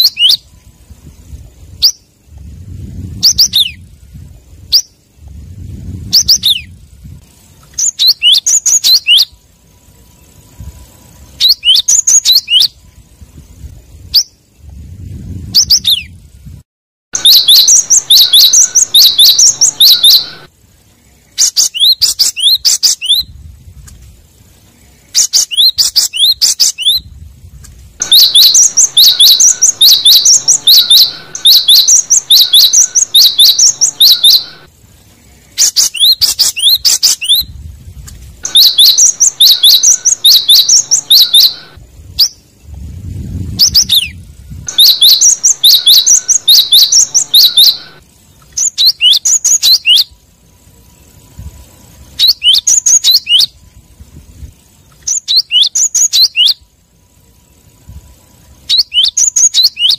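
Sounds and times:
bird singing high repeated notes: 0.0s - 0.6s, 1.8s - 2.4s, 3.0s - 4.0s, 6.0s - 6.8s, 7.7s - 13.0s, 15.5s - 16.2s, 17.2s - 23.3s, 24.8s - 27.1s, 28.0s - 34.7s, 35.3s - 37.6s, 38.4s - 42.7s, 43.4s - 50.2s, 50.8s - 53.6s, 55.0s - 56.7s, 58.4s - 59.9s.

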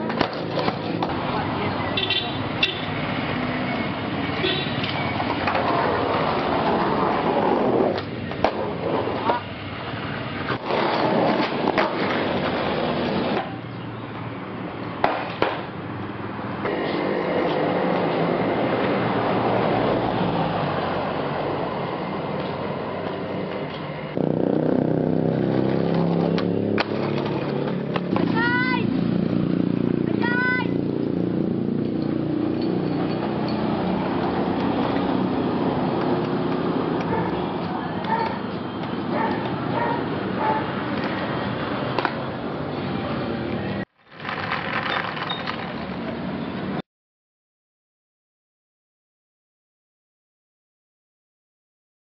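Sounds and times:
skateboard clacking: 0.0s - 1.6s, 4.8s - 9.5s, 10.4s - 13.6s, 15.0s - 15.7s, 25.9s - 28.5s, 44.1s - 46.2s
skateboard wheels rolling on concrete: 0.0s - 46.8s.

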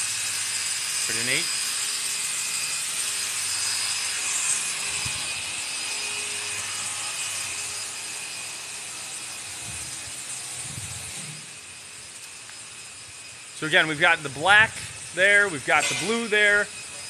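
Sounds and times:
electric polisher hissing: 0.0s - 17.0s.

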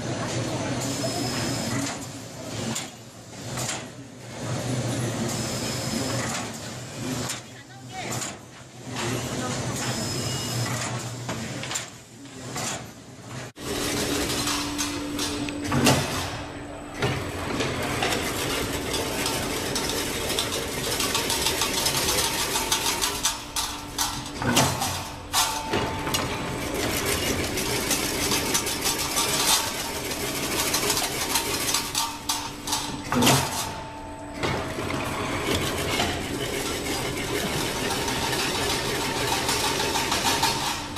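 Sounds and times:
machine hum: 13.5s - 40.9s
machine clank: 13.6s - 40.9s
fence machine metallic clatter: 17.5s - 33.8s, 34.4s - 40.9s.

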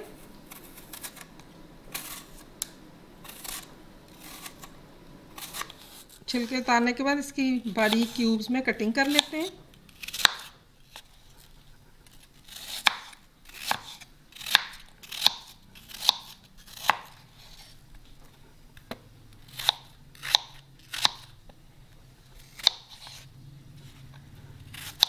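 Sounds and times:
knife chopping on wooden board: 12.7s - 17.2s.

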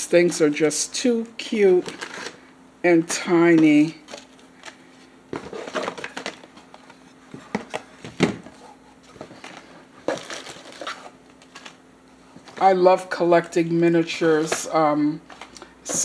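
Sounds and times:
plastic and card packaging crinkling: 1.8s - 2.4s, 3.5s - 8.4s, 9.0s - 11.8s.

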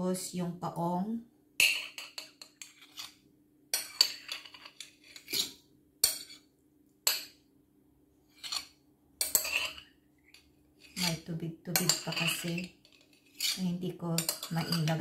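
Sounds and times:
metal spoon scraping a plate: 1.6s - 6.5s, 8.3s - 15.0s.

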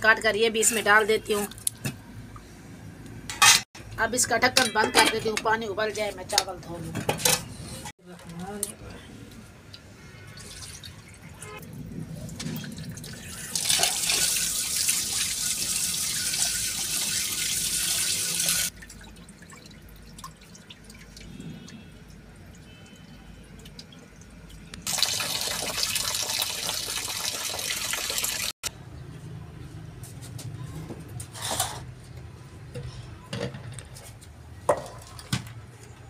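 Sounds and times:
tap water running into tray: 12.8s - 21.2s, 24.9s - 28.5s.

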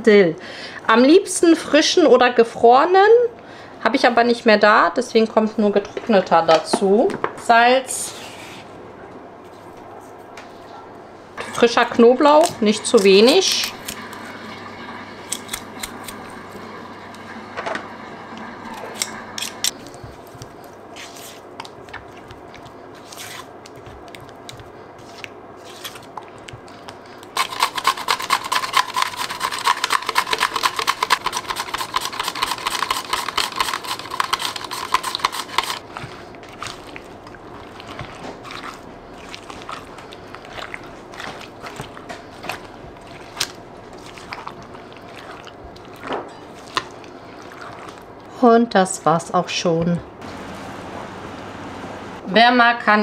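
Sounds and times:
spatula scraping ceramic bowl: 12.2s - 14.4s, 27.4s - 35.8s
mandoline slicer rasping: 12.4s - 17.2s, 27.4s - 35.8s.

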